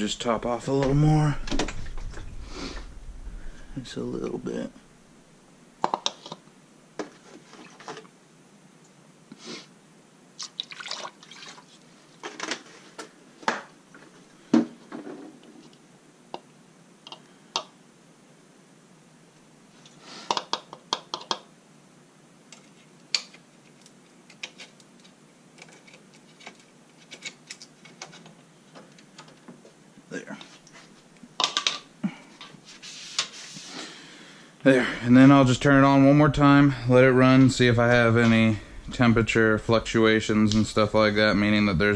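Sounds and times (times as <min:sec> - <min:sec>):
plastic funnel clicks and knocks: 0:20.3 - 0:21.4.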